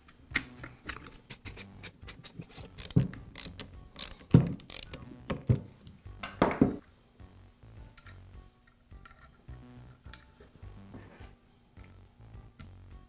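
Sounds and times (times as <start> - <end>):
hand screwdriver screwing: 0.9 - 5.6.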